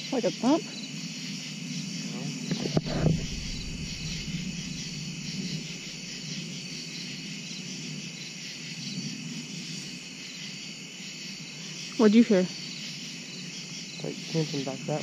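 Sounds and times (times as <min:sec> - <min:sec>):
crickets and insects chirping: 0:00.0 - 0:15.0
faint low rumble: 0:02.1 - 0:06.8.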